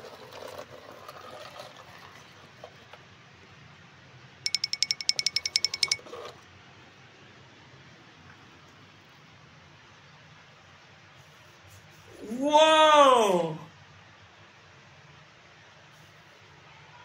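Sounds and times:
rapid electronic beeping: 0:04.5 - 0:06.0.

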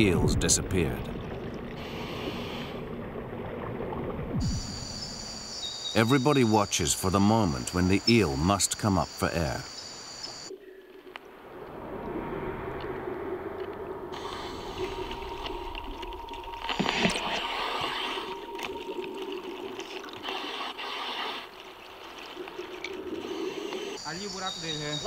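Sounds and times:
low hum: 0:00.0 - 0:05.6, 0:10.5 - 0:20.9
underwater moving water gurgling: 0:00.0 - 0:05.6, 0:10.5 - 0:24.0.

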